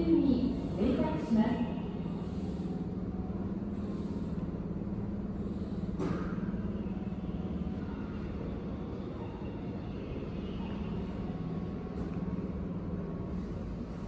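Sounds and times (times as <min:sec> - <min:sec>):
steady hum: 0:00.0 - 0:14.0.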